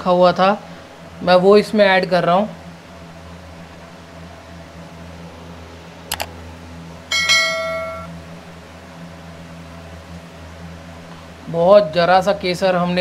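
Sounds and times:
steady low hum: 0.0 - 13.0
notification bell ding: 7.1 - 8.1.

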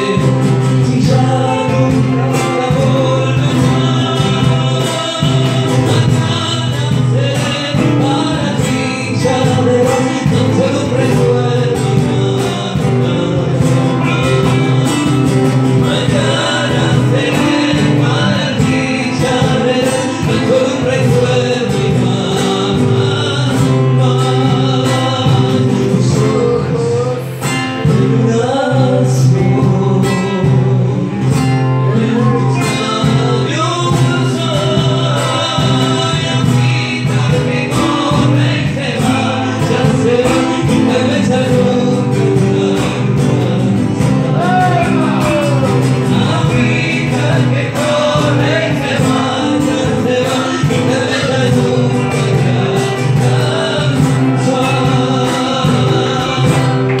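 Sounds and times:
cajon beat: 0.0 - 57.0
man singing: 0.0 - 57.0
strummed acoustic guitars: 0.0 - 57.0.

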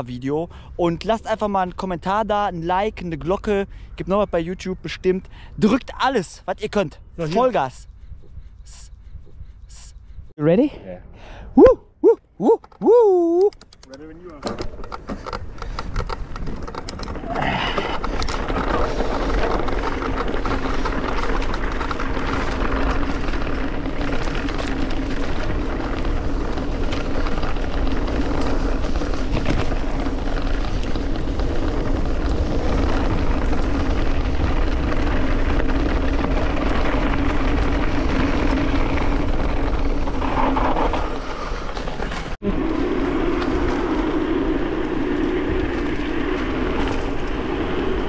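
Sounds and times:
wind rushing over microphone: 3.6 - 12.0, 12.8 - 48.0
tyre noise: 11.6 - 48.0.

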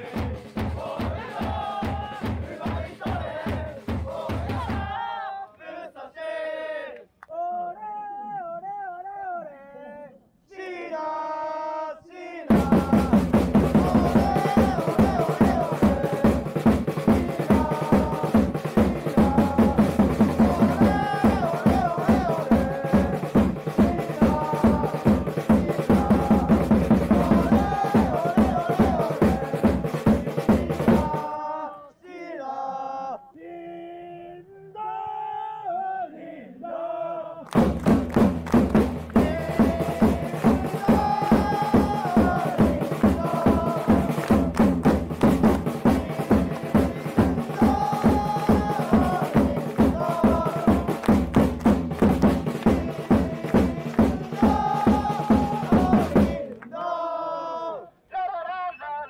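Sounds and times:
bass drum beating: 0.0 - 5.0, 12.5 - 31.1, 37.6 - 56.4
football supporters chanting: 0.0 - 7.8, 8.5 - 59.0
lone voice singing: 0.0 - 37.5, 39.0 - 44.6, 45.5 - 51.3, 52.4 - 59.0.

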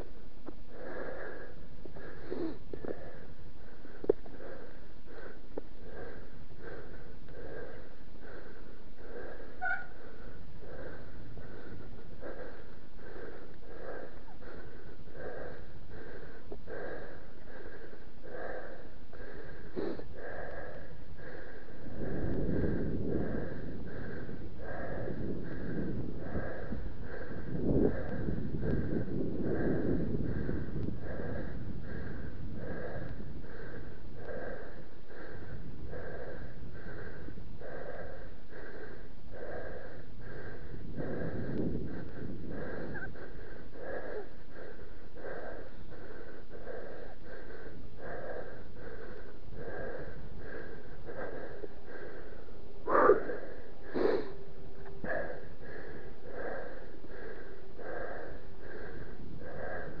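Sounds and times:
heavy rhythmic breathing: 0.0 - 60.0.

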